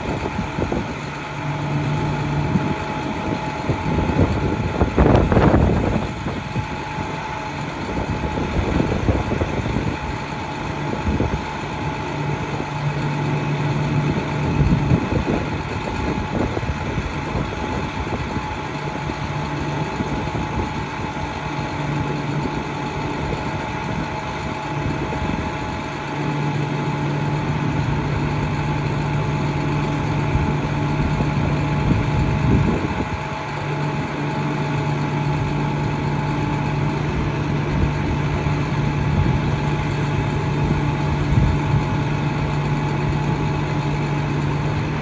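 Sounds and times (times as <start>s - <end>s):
diesel engine idling: 0.0s - 45.0s
machinery hum: 0.0s - 45.0s.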